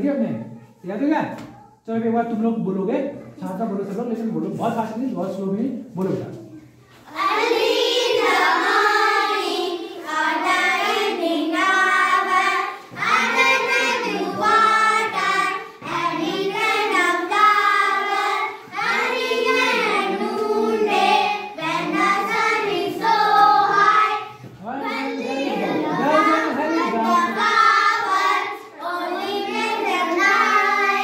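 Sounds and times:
children chanting a rhyme: 7.0 - 31.0.

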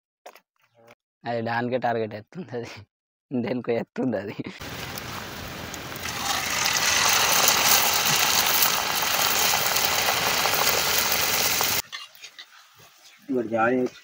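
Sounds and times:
hot oil sizzling and crackling: 4.6 - 14.0.

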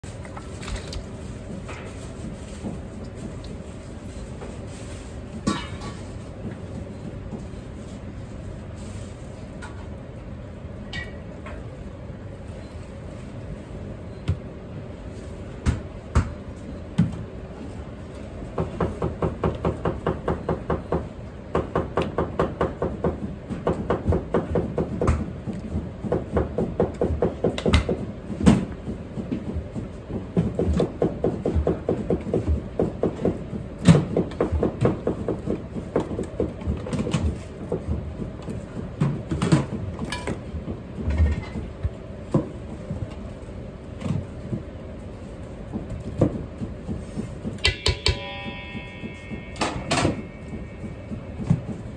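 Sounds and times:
steady low hum: 0.0 - 51.9.

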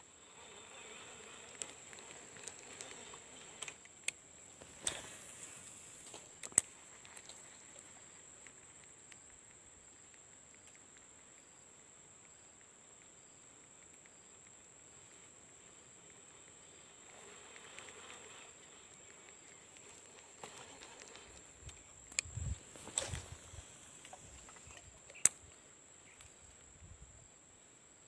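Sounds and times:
high-pitched insect drone: 0.0 - 3.9
insect chirps: 0.0 - 28.0
soft rustle: 0.2 - 11.4, 13.8 - 26.8.

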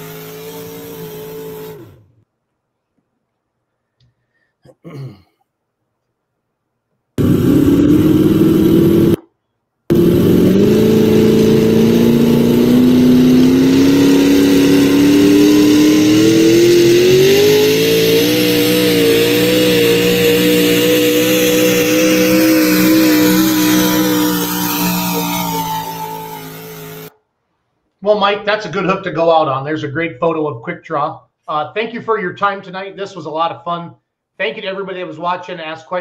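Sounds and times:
tractor engine running hard: 0.0 - 2.1, 7.2 - 9.2, 9.9 - 27.1.

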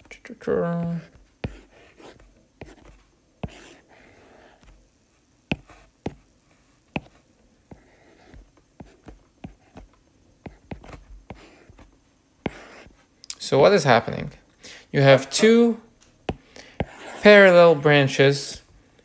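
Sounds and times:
stylus scratching strokes: 1.0 - 4.8, 16.8 - 17.6
stylus tapping on tablet screen: 5.5 - 6.2, 7.0 - 11.8.

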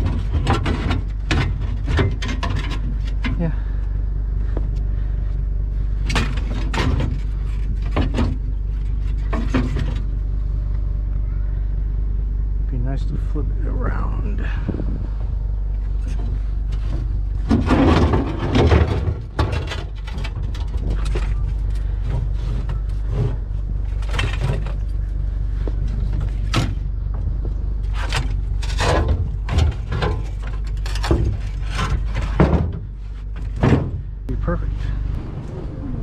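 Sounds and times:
scrap metal knocking and rattling: 0.0 - 3.7, 5.9 - 10.3, 14.6 - 34.3
steady low rumble: 0.0 - 36.0.

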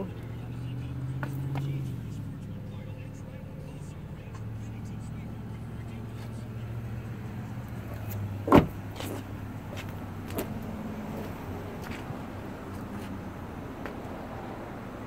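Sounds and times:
loud thump: 8.5 - 8.8.

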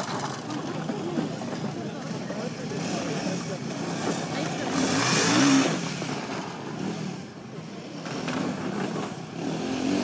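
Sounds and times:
motorcycle engine revving: 2.7 - 6.2, 8.1 - 10.0.

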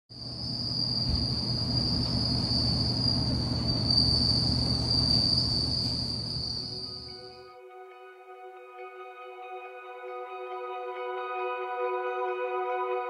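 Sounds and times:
crickets trilling: 0.1 - 7.4.

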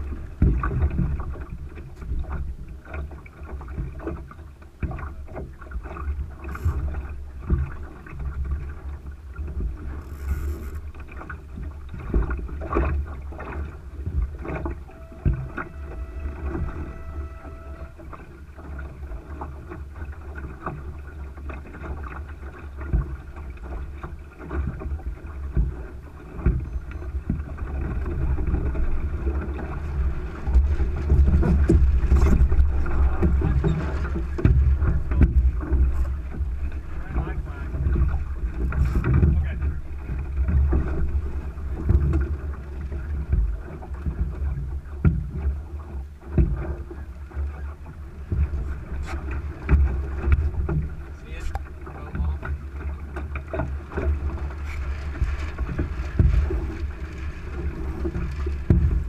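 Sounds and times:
knocks and clicks from boat gear: 0.0 - 59.0
water rushing along hull: 0.0 - 59.0
wind buffeting microphone: 22.7 - 47.1, 47.8 - 59.0.

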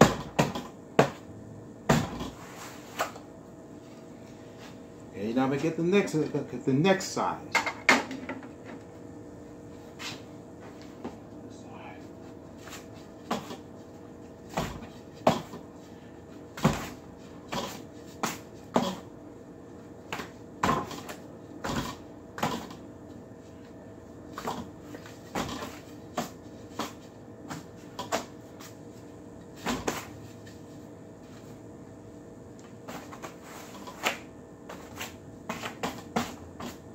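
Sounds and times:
faint steady hum: 0.0 - 36.9.

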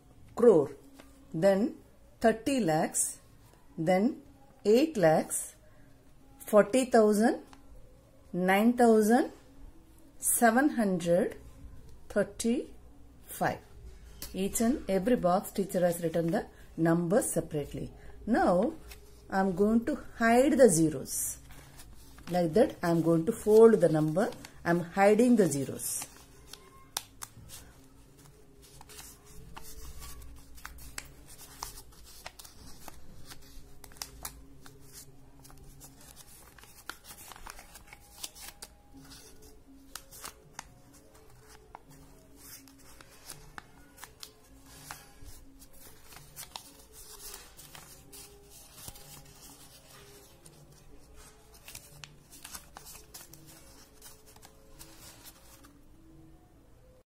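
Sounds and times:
faint background music: 0.0 - 57.0
paper being folded and creased: 21.4 - 24.5, 25.7 - 55.9.

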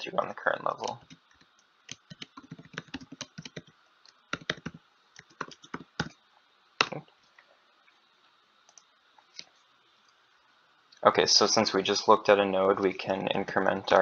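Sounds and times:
typing on computer keyboard: 0.8 - 3.7, 4.3 - 6.1.

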